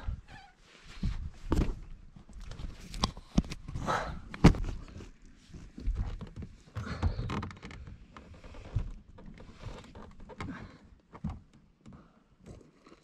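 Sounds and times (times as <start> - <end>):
clothing and bedding rustling: 0.0 - 3.0.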